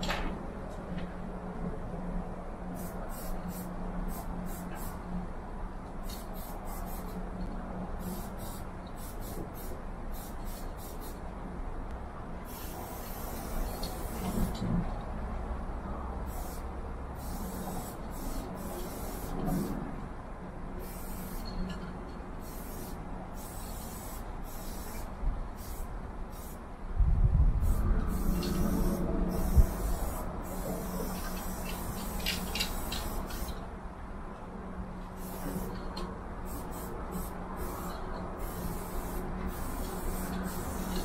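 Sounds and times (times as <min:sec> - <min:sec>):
spray paint can hissing: 0:02.8 - 0:05.0, 0:06.0 - 0:07.2, 0:08.0 - 0:11.2, 0:12.5 - 0:14.6, 0:16.3 - 0:19.8, 0:20.8 - 0:21.5, 0:22.4 - 0:26.6, 0:27.6 - 0:33.6, 0:35.2 - 0:35.8, 0:36.4 - 0:41.0.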